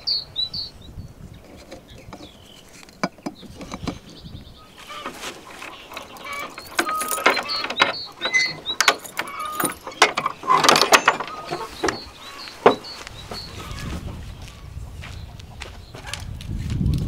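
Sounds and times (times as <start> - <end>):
wooden door opening: 4.9 - 13.8
padlock rattling and clicking: 5.6 - 12.8.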